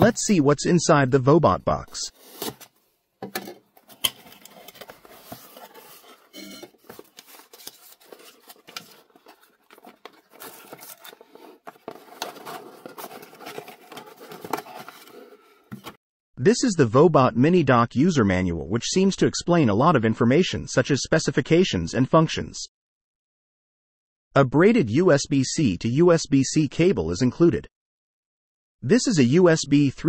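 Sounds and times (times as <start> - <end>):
cardboard box being opened: 2.2 - 2.7, 3.8 - 16.0.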